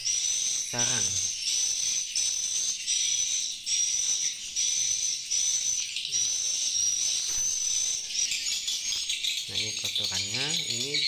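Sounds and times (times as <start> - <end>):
swiftlets twittering: 0.0 - 11.0.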